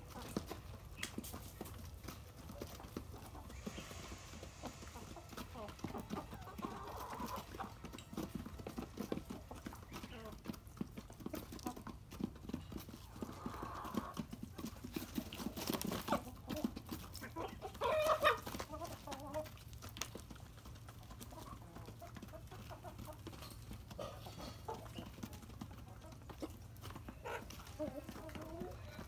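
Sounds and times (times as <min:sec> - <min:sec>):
chickens pecking feed: 0:00.0 - 0:29.0
chicken calling: 0:02.6 - 0:10.6.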